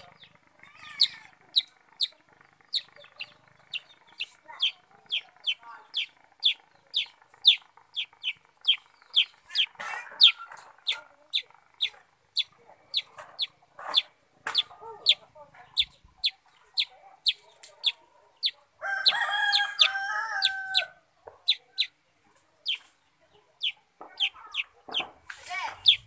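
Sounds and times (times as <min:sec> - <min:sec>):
faint lower bird chatter: 0:00.0 - 0:26.0.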